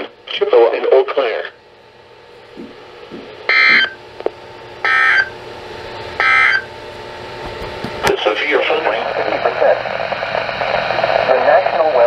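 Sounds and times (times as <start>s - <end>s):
harsh digital data bursts: 3.5s - 4.0s, 4.8s - 5.3s, 6.2s - 6.7s.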